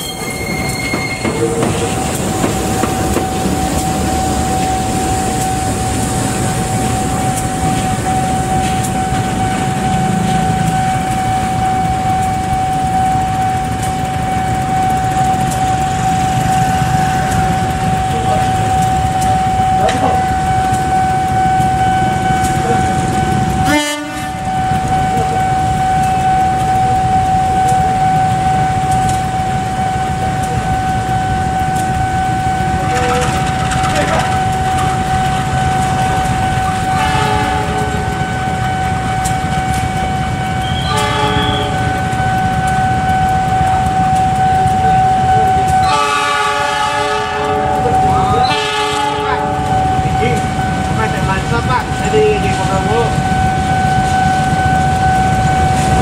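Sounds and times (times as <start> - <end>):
locomotive engine rumble: 0.0 - 56.0
locomotive horn blasts: 23.6 - 24.6, 36.8 - 39.2, 40.6 - 42.0, 45.8 - 49.8.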